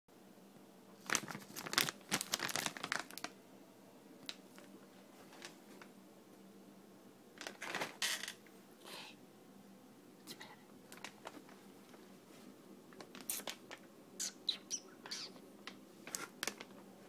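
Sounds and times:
plastic bag crinkling: 0:01.0 - 0:03.4, 0:16.0 - 0:16.8.

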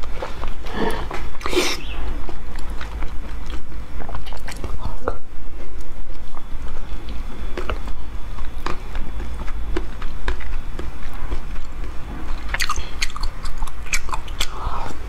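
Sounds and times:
low steady hum: 0:00.0 - 0:15.0
wet lip smacks and clicks: 0:09.7 - 0:15.0.

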